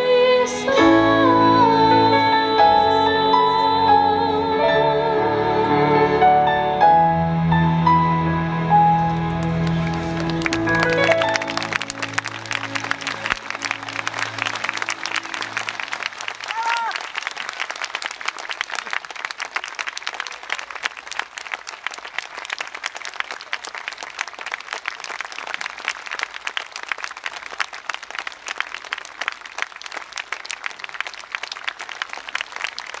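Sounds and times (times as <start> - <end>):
audience applauding: 9.0 - 33.0.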